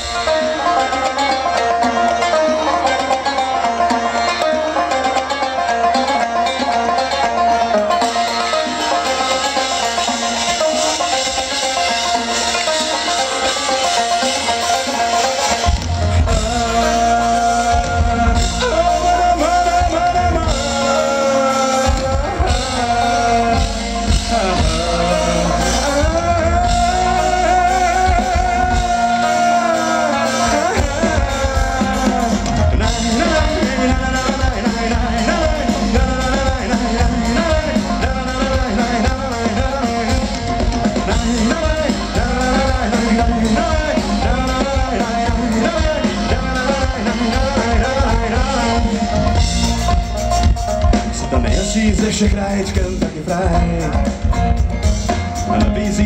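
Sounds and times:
drums: 0.0 - 56.0
electric guitars: 0.0 - 56.0
electric bass: 14.2 - 56.0
man singing into a microphone: 16.0 - 49.5, 51.1 - 54.5, 55.4 - 56.0.

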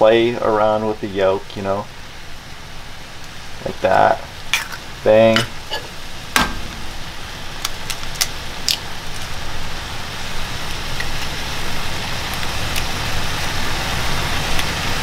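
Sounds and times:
food sizzling in a pan: 1.9 - 15.0.

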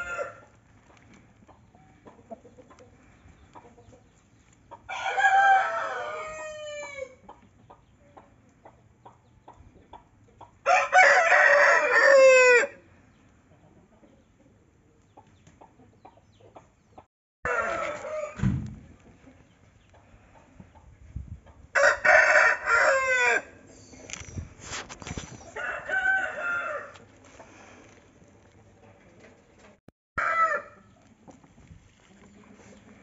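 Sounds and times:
roosters crowing: 0.0 - 0.6, 4.8 - 7.2, 10.6 - 12.8, 17.5 - 18.6, 21.7 - 23.7, 25.4 - 27.7, 30.2 - 30.9.

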